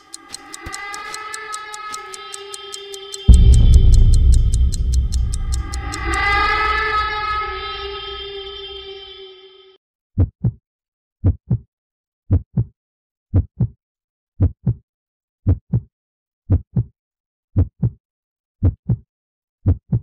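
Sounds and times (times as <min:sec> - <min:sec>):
heartbeat thumps: 0:03.3 - 0:08.6.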